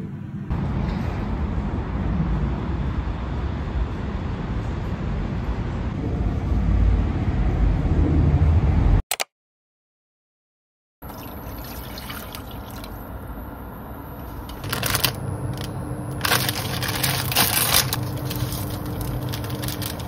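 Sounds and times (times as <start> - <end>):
distant traffic: 0.0 - 9.0
low city rumble: 0.0 - 9.0, 11.0 - 20.0.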